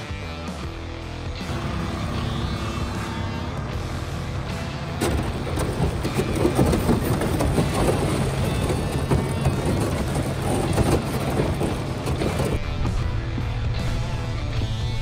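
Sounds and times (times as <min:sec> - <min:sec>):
ice cracking against boat hull: 0:05.0 - 0:12.6.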